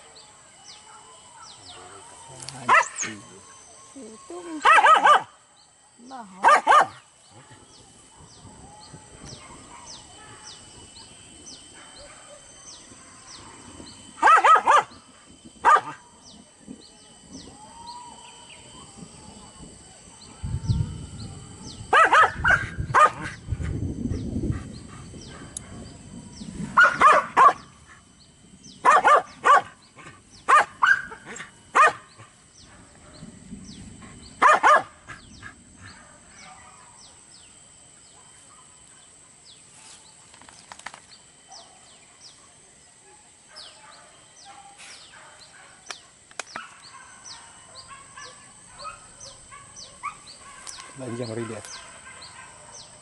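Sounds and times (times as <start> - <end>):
dogs barking: 0.8 - 2.0, 2.6 - 3.2, 4.6 - 5.4, 6.3 - 8.4, 9.3 - 10.5, 11.7 - 13.2, 14.1 - 15.0, 15.6 - 16.0, 21.9 - 23.4, 26.7 - 28.0, 28.8 - 33.3, 34.1 - 37.0, 41.5 - 53.0.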